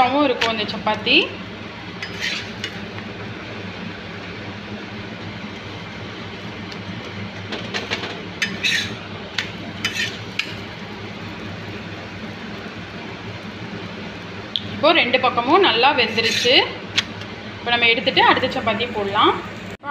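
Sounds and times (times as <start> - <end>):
flatbread sizzling in oil: 1.6 - 14.6, 15.2 - 19.8
steel spatula scraping pan: 2.0 - 2.8, 8.4 - 9.0, 9.8 - 10.5, 16.0 - 16.7.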